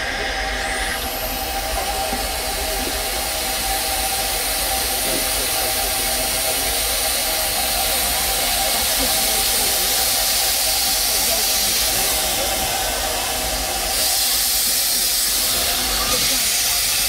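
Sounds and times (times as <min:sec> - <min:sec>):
steam locomotive hissing: 0:00.0 - 0:17.0.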